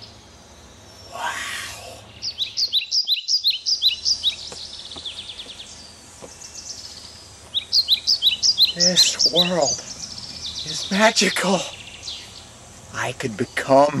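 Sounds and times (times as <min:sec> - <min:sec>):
songbird chirping and trilling: 0:00.0 - 0:14.0
person yelling: 0:01.1 - 0:02.0.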